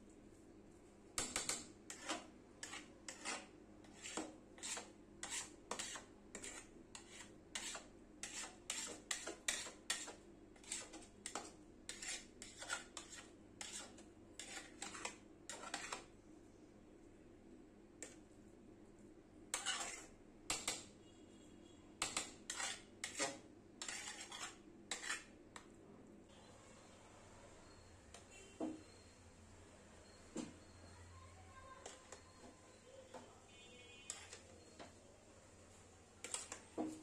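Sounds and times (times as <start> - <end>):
metal spatula scraping a pot: 1.2 - 16.1, 19.5 - 20.9, 22.0 - 25.4, 31.8 - 32.5, 34.0 - 34.8, 36.2 - 37.0.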